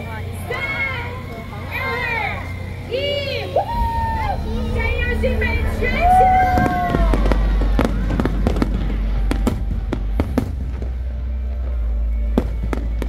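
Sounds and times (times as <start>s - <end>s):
low rumble: 3.5s - 13.0s.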